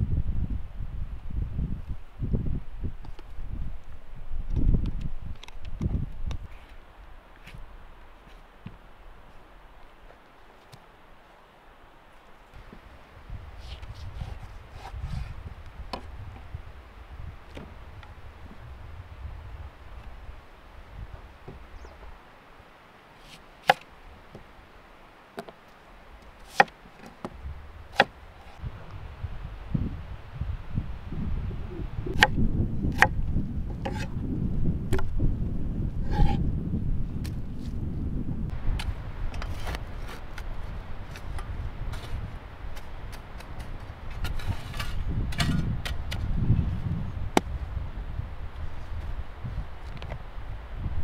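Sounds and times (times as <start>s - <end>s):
shovel scraping stones: 38.8s - 46.3s
shovel digging into soil: 41.1s - 46.3s.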